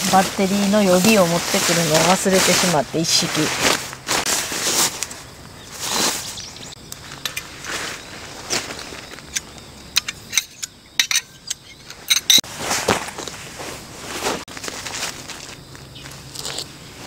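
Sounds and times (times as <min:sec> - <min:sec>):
footsteps on grass: 0:00.0 - 0:09.6, 0:12.4 - 0:17.0
tent peg pulled from turf: 0:00.1 - 0:05.2, 0:12.0 - 0:15.6
pole sections clacking: 0:09.3 - 0:12.4.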